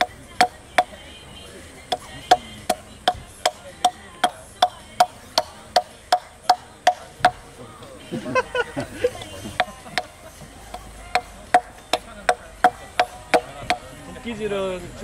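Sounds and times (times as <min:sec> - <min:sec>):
hatchet chipping wood: 0:00.0 - 0:01.0, 0:01.9 - 0:07.4, 0:10.7 - 0:13.9.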